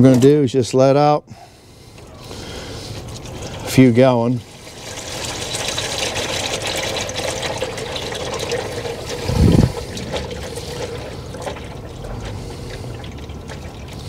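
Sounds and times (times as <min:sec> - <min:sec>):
oil pouring into a pan: 0:04.4 - 0:14.0.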